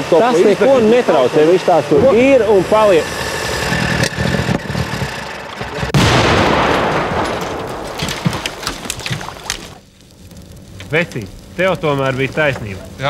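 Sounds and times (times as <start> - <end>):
car explosion: 5.3 - 9.9.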